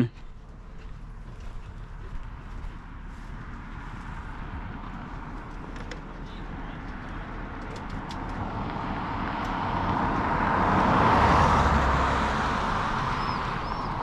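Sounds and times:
vehicle passing on highway: 0:00.0 - 0:14.0.

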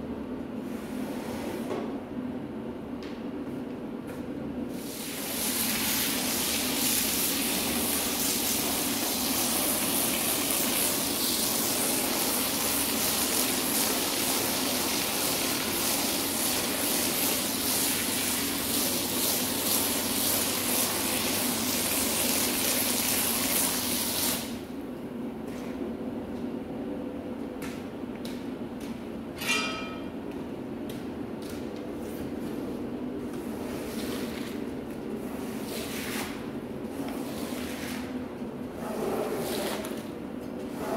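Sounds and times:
high-pressure water spray: 0:04.8 - 0:24.5.

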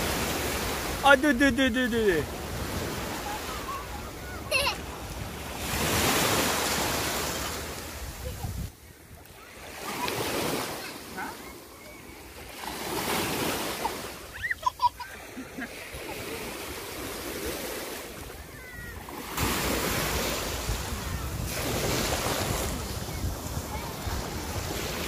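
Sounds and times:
shallow waves washing and splashing: 0:00.0 - 0:25.0
wind rumble on microphone: 0:07.8 - 0:08.8, 0:20.1 - 0:25.0.

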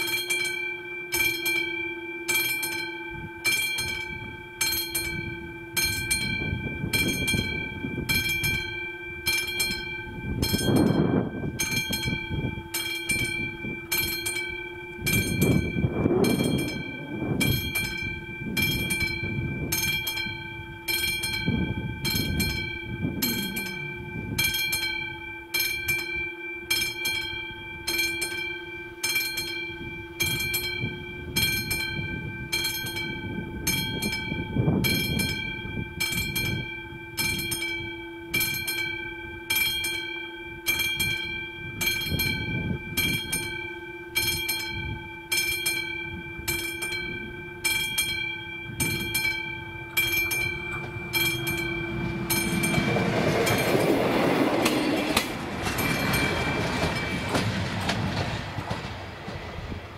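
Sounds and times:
level crossing bell ringing: 0:00.0 - 0:58.2
low rumbling: 0:05.2 - 0:25.6, 0:48.7 - 0:59.9.

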